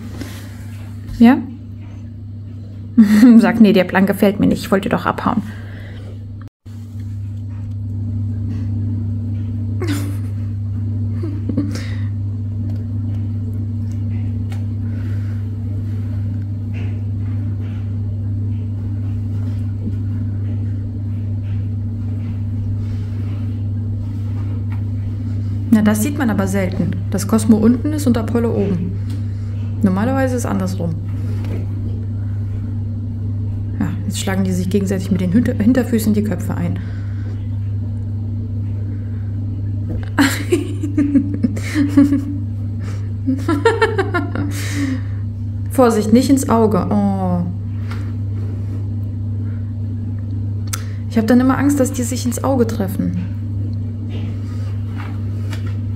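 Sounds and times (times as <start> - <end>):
laundry machine humming: 0.0 - 55.9
woman laughing softly: 3.0 - 3.6, 9.8 - 12.2, 40.0 - 45.3.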